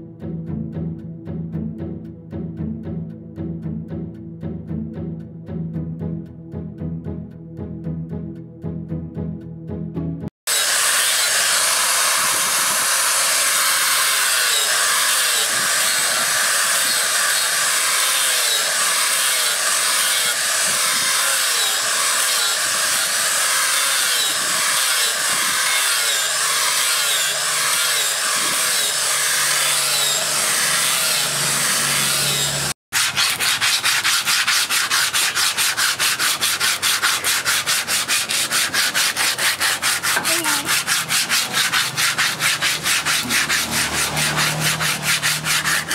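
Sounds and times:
angle grinder sanding wood: 10.5 - 45.9
sandpaper rubbed by hand on wood: 32.9 - 45.9.

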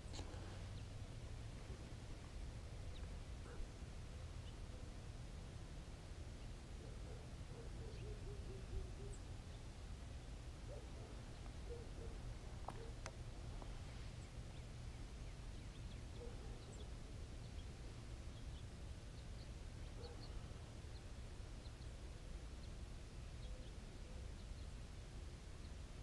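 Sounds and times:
low bird calls: 6.8 - 9.4, 10.6 - 13.1, 13.9 - 21.9.

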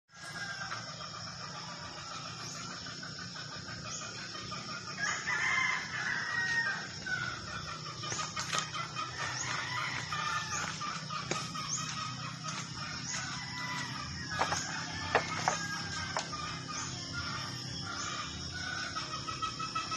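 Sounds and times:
rooster crowing: 4.7 - 19.2.

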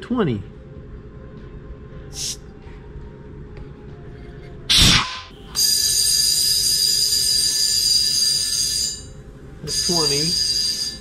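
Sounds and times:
compressed air hissing: 2.2 - 2.4
high whistling air hiss: 2.2 - 2.4, 4.8 - 11.0
loud burst of air: 4.7 - 5.3.

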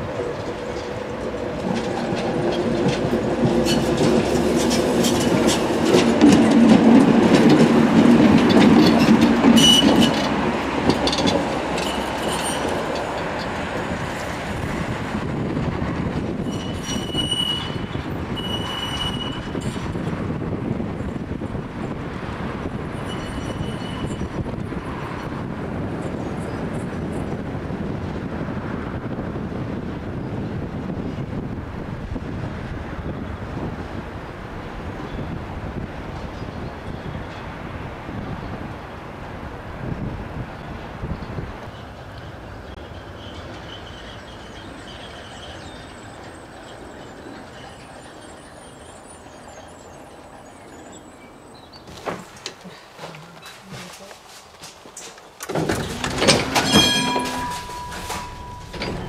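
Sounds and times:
tram rumbling on track: 0.0 - 59.0
faint high wheel squeal: 16.4 - 19.8, 22.9 - 24.4, 41.1 - 51.9, 56.0 - 59.0.

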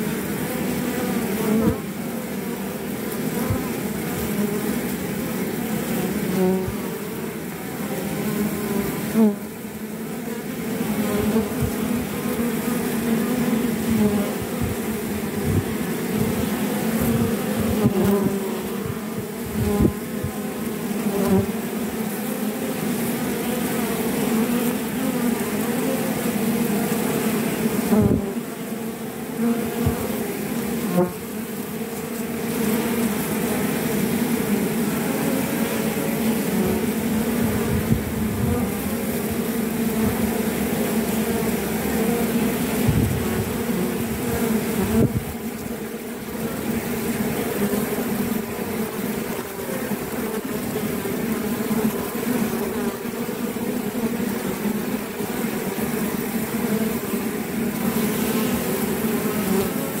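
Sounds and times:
honeybees buzzing: 0.0 - 60.0.

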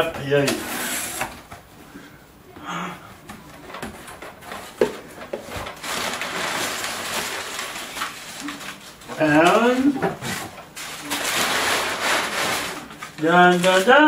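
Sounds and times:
paper rustling and crinkling: 3.2 - 14.0.

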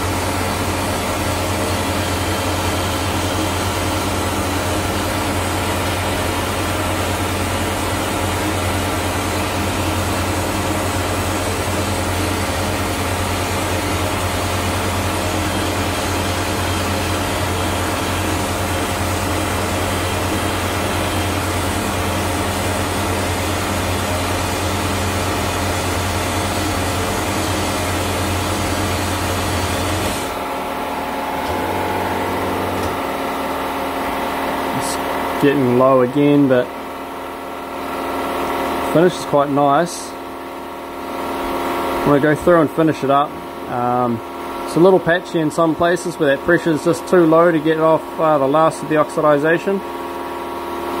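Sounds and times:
hissing blast nozzle jet: 0.0 - 36.4
low machine hum: 0.0 - 51.0.

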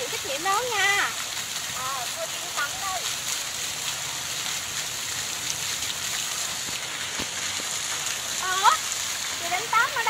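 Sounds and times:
water fountains splashing into pond: 0.0 - 10.0.

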